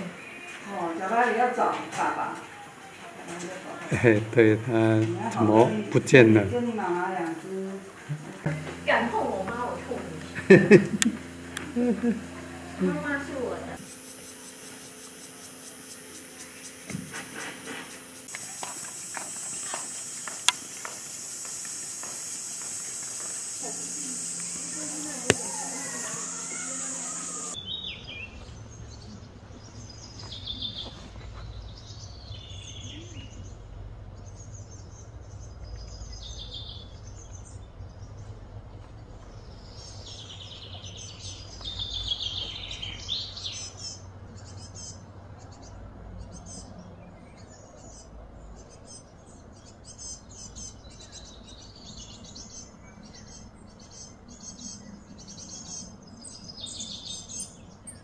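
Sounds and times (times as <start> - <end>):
steady low hum: 3.9 - 58.0
birds chirping and calling: 12.4 - 58.0.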